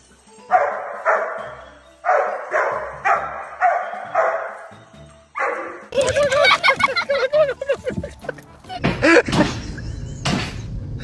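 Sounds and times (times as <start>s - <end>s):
dog barking: 0.5s - 4.7s, 5.4s - 5.9s.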